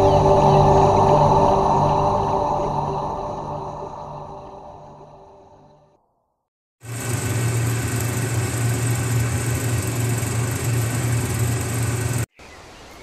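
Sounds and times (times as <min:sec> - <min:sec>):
low hum: 0:00.0 - 0:06.0, 0:06.8 - 0:12.3
film projector whirring and rattling: 0:06.8 - 0:12.3.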